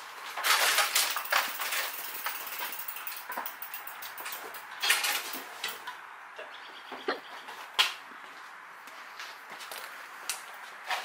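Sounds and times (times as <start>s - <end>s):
hard objects clattering and clinking: 0.4s - 5.9s.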